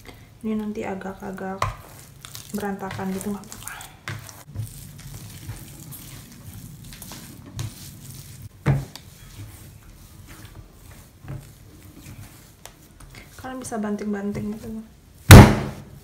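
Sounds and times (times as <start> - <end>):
dough squishing and rubbing: 0.0 - 16.0
sharp knock: 15.3 - 15.8.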